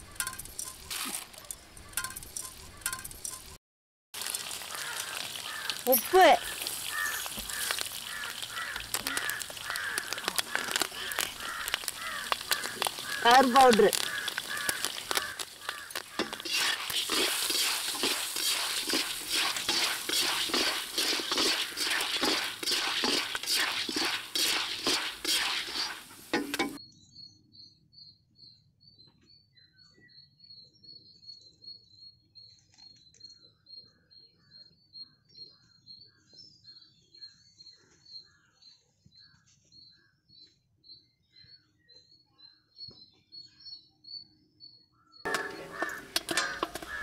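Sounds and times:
ladle scraping kernels in iron pan: 4.2 - 26.8, 45.3 - 47.0.

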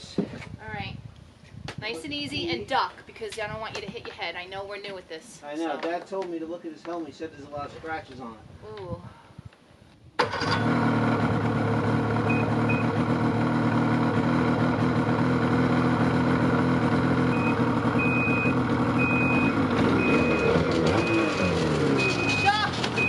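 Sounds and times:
snowmobile engine running: 10.4 - 23.0
high electronic reverse beeps: 12.2 - 13.0, 17.3 - 23.0.

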